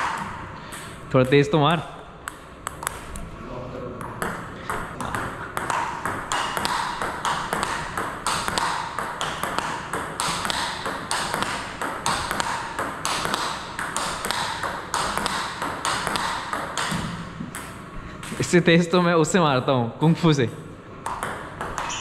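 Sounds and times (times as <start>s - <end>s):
ball bouncing on table: 2.2s - 3.2s, 4.0s - 18.6s, 20.4s - 22.0s
ball clicking off paddles: 2.2s - 3.3s, 4.0s - 18.6s, 21.0s - 22.0s.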